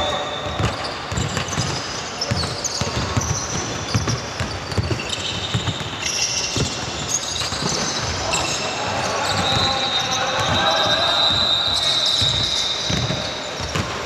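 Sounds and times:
sneakers squeaking on court: 0.0s - 14.0s
basketball dribbling: 0.5s - 8.1s, 10.4s - 14.0s.

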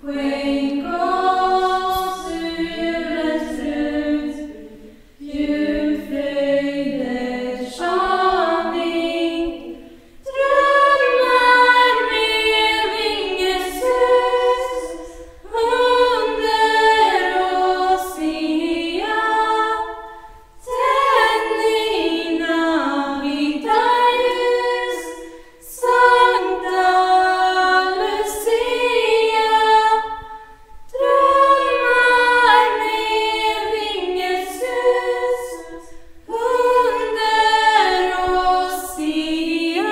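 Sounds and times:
girls' choir singing a cappella: 0.0s - 39.9s.

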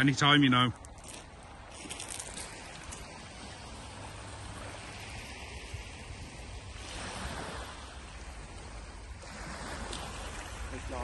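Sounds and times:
waves washing on shingle: 0.0s - 11.0s
wind rumbling on microphone: 0.0s - 11.0s.

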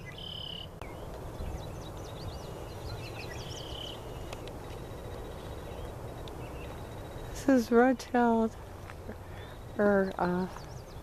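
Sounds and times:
high bird chirps: 0.0s - 7.4s
bird buzzy trills: 0.0s - 7.9s
steady low rumble: 0.7s - 11.0s.

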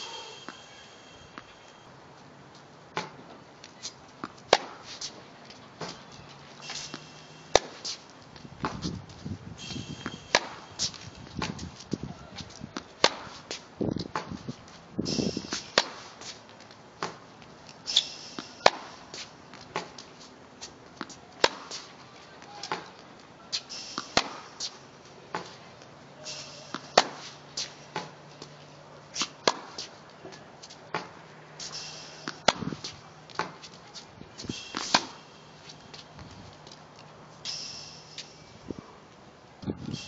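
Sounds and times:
tennis balls hit with racket: 2.9s - 38.5s
shoes scuffing: 4.6s - 5.2s, 5.8s - 17.2s.

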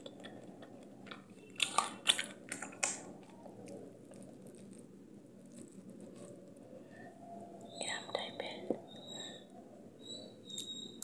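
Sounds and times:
quiet chewing: 0.0s - 7.7s.

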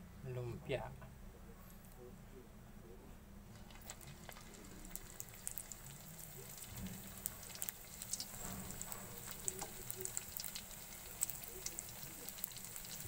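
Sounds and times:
spring rolls sizzling in oil: 3.5s - 13.0s.

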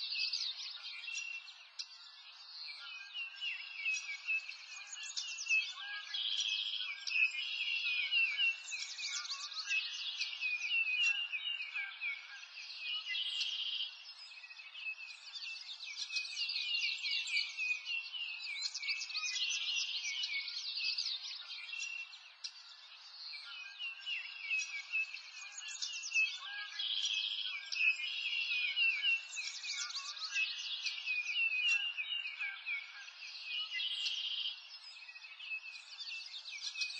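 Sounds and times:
songbirds chirping and trilling: 0.0s - 36.9s.

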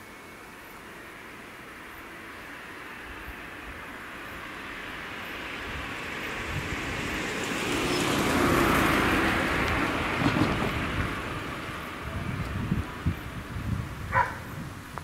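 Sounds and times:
car driving past: 4.4s - 12.3s
wheels bumping over rails: 9.2s - 12.8s.

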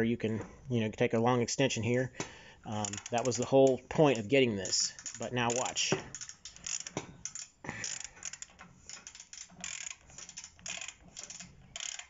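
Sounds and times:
ratchet clicking: 2.7s - 12.0s.

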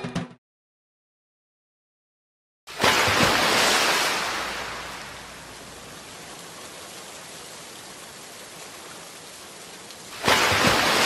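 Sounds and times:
rain-like rushing hiss: 2.7s - 11.0s.

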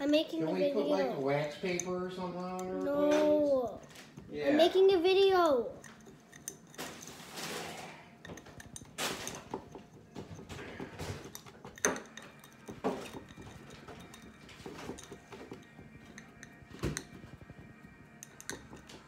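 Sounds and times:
metal spoon scraping a glass: 5.7s - 19.0s.

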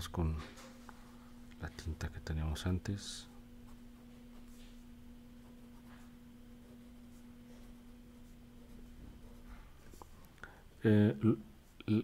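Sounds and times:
faint low hum: 0.0s - 12.0s
pen scratching on paper: 5.4s - 10.0s.

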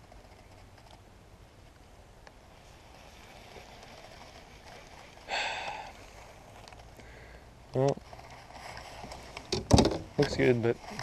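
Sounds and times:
fishing reel spool whirring: 2.7s - 7.0s.

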